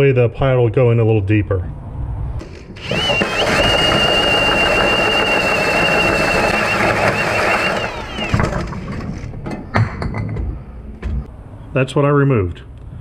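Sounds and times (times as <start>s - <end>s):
drill cutting metal with hole saw: 2.8s - 9.2s.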